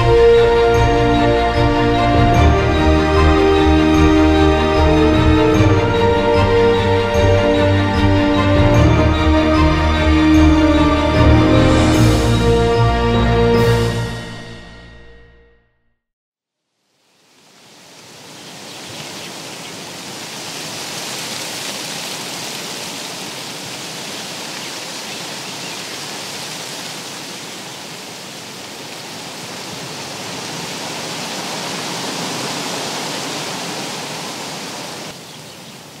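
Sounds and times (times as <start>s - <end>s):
steady rushing outdoor noise: 17.5s - 36.0s.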